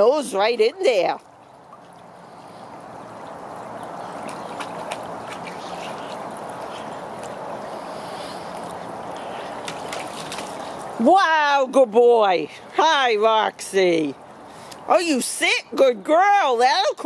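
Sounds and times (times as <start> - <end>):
dogs splashing in shallow water: 0.0 - 11.6
patter of falling water: 0.0 - 17.0.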